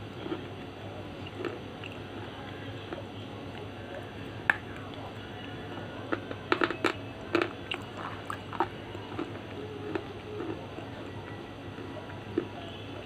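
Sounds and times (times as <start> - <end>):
crunching between teeth: 0.1 - 13.0.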